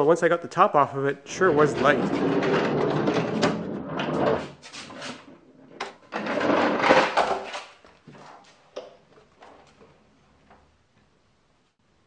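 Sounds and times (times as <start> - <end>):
wooden drawer scraping across floor: 1.4 - 8.3.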